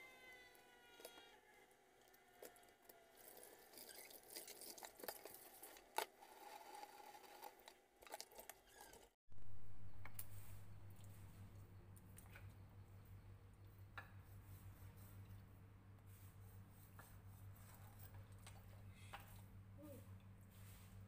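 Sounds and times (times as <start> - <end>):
low steady hum: 9.3 - 21.0.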